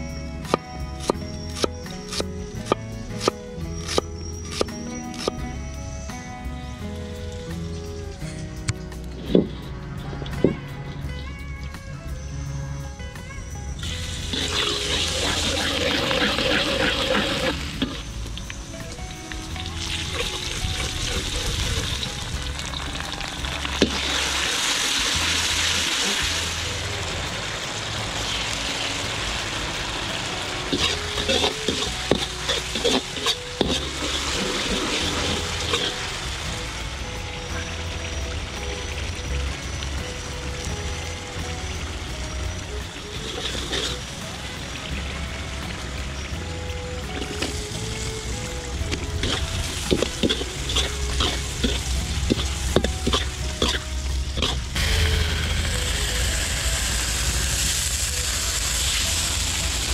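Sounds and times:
garlic sizzling in hot oil: 13.8 - 59.9
ladle scraping and clacking on wok: 30.7 - 36.1, 49.2 - 54.7.

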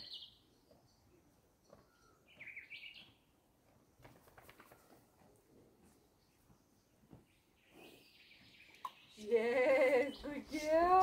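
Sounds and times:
faint bird chirps: 0.0 - 3.2, 5.9 - 9.3.

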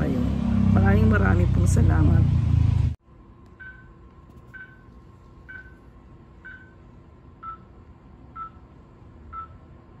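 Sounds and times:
low equipment hum: 1.0 - 10.0
patient monitor beeping: 3.6 - 7.7, 8.3 - 8.7, 9.3 - 9.6.

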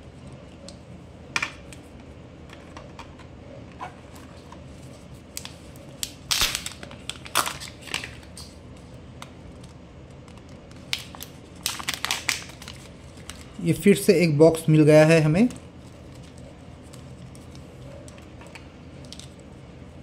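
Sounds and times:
plastic and foil crinkling: 5.3 - 8.4, 10.8 - 13.6.

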